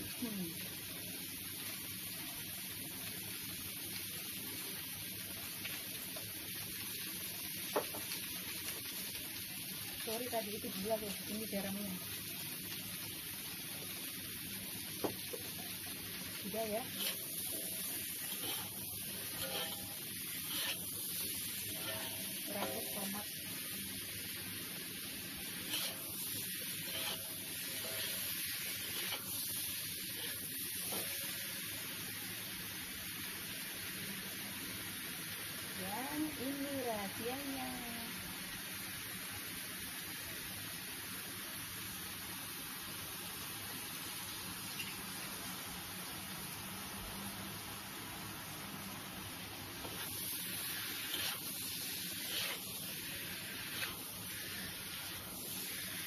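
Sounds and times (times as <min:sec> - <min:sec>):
food sizzling in hot oil: 0:00.0 - 0:56.0
metal spatula scraping wok: 0:16.8 - 0:23.4, 0:25.4 - 0:29.5, 0:30.1 - 0:31.2, 0:49.8 - 0:56.0.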